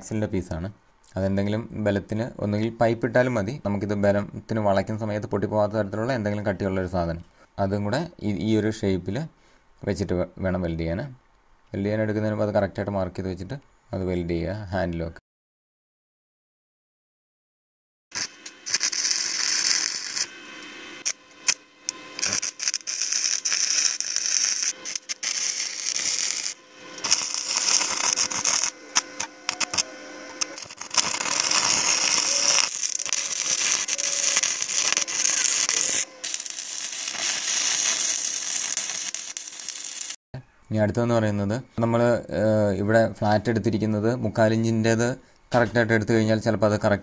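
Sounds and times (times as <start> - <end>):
welding arc crackling and sizzling: 18.1 - 40.2.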